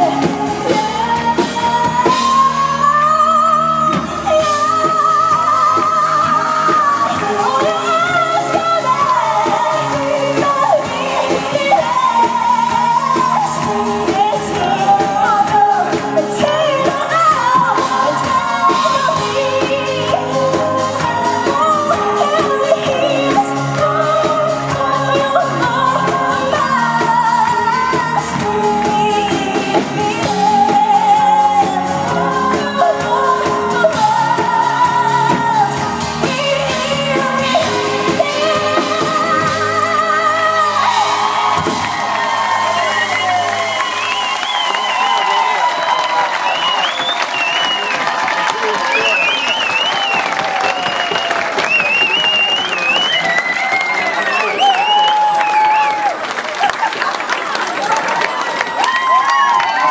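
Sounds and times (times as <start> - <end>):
person singing: 0.0 - 47.2
drums: 0.0 - 59.9.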